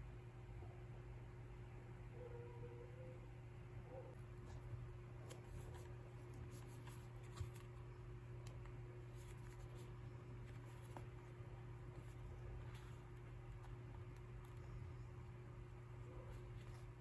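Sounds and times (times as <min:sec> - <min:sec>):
steady low hum: 0:00.0 - 0:17.0
smartphones being handled: 0:04.4 - 0:14.7.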